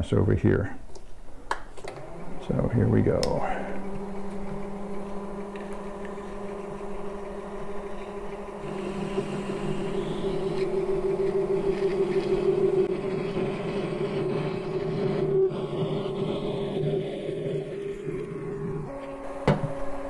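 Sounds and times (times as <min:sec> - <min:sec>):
lathe motor hum: 0:01.8 - 0:20.0.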